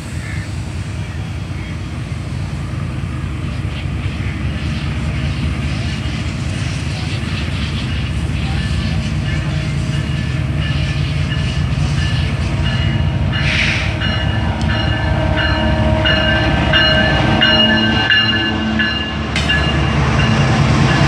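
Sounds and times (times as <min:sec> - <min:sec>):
locomotive engine rumble: 0:00.0 - 0:21.0
high ringing tones: 0:09.4 - 0:21.0.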